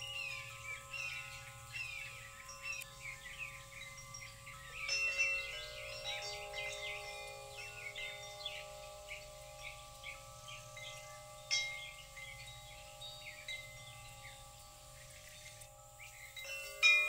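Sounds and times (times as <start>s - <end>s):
chimes ringing softly: 0.0s - 17.0s.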